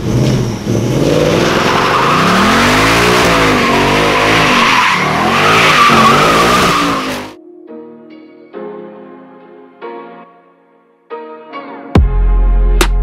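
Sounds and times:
car engine revving: 0:00.0 - 0:07.3
tyres squealing on asphalt: 0:00.0 - 0:07.3.

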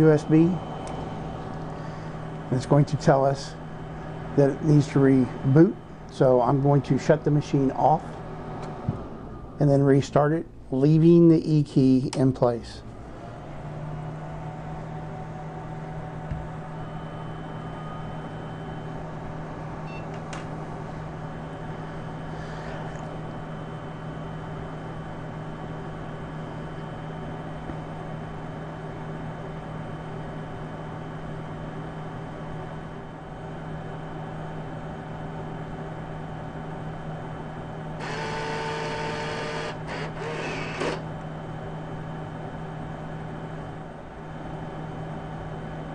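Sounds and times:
machine hum with fan noise: 0:00.0 - 0:45.9
small motor whirring: 0:38.0 - 0:41.1.

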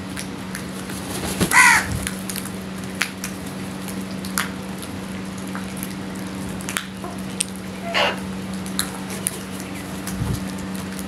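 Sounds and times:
steady low hum: 0:00.0 - 0:11.0
crow cawing: 0:01.5 - 0:01.9.

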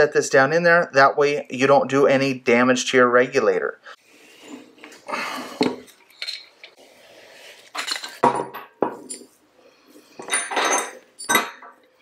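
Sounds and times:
metal parts clinking on wood: 0:05.8 - 0:06.7, 0:10.2 - 0:11.8.

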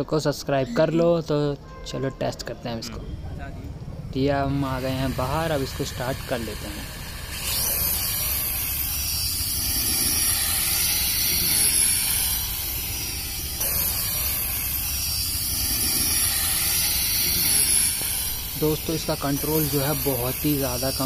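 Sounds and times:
toy drone propellers whining: 0:04.4 - 0:21.0.

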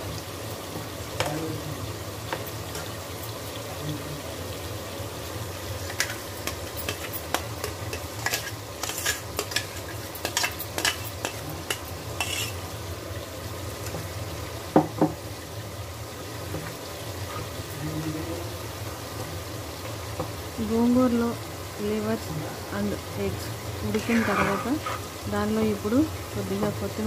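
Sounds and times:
spoon clinking and scraping pan: 0:05.8 - 0:12.6, 0:23.9 - 0:25.1.

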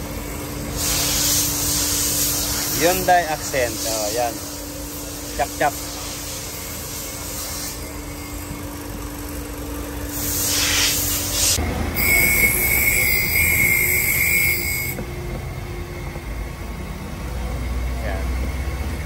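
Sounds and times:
pressurised gas hissing: 0:00.6 - 0:08.0, 0:10.1 - 0:15.0
high steady whistle: 0:10.2 - 0:15.3.

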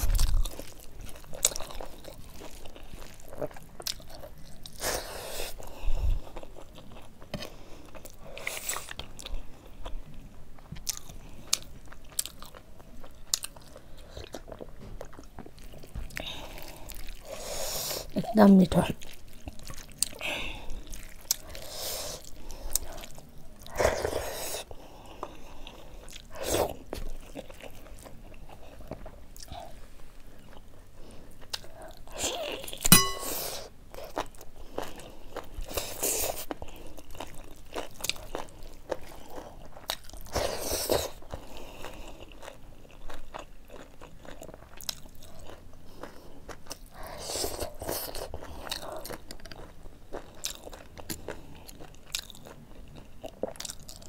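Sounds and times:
chewing and biting: 0:00.0 - 0:18.2, 0:19.0 - 0:29.7, 0:30.3 - 0:54.0
metallic clink: 0:32.9 - 0:33.6.

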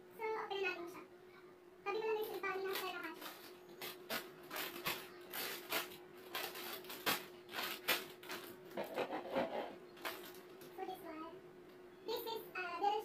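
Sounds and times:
faint steady hum: 0:00.0 - 0:13.0
plastic bags crinkling: 0:02.2 - 0:10.7.

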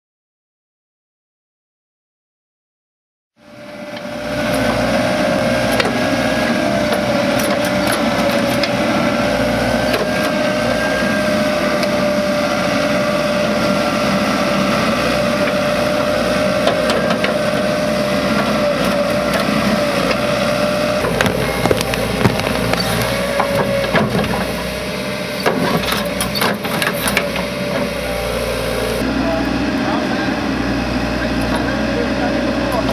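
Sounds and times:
excavator engine and hydraulics: 0:03.4 - 0:32.9.

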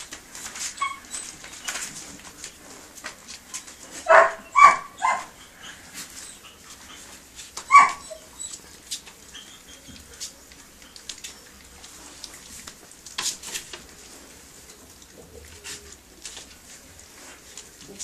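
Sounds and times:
puppies eating from metal bowl: 0:00.0 - 0:18.0
dog yelping: 0:00.7 - 0:01.4, 0:04.0 - 0:08.7.

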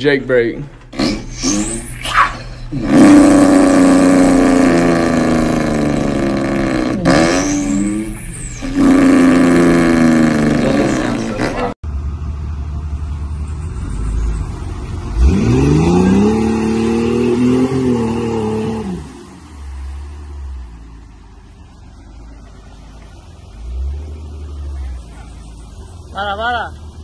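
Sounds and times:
off-road vehicle engine revving: 0:00.9 - 0:27.0.

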